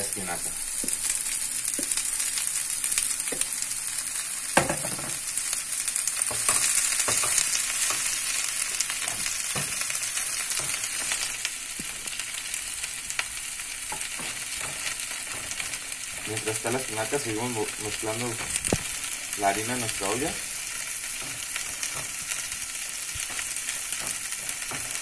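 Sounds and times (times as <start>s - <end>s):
spinach sizzling in hot oil: 0.0s - 25.0s
wooden spoon knocking pan: 4.6s - 5.2s, 21.1s - 22.4s, 23.2s - 25.0s.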